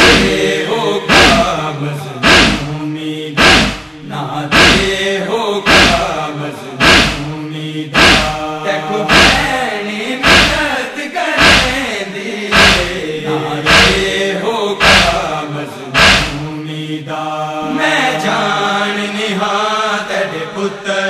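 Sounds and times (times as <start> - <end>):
rhythmic chest-beating thumps: 0.0 - 2.8, 3.4 - 5.0, 5.6 - 9.6, 10.2 - 10.8, 11.4 - 11.9, 12.5 - 14.2, 14.8 - 15.4, 16.0 - 16.6
men chanting in unison: 0.0 - 21.0.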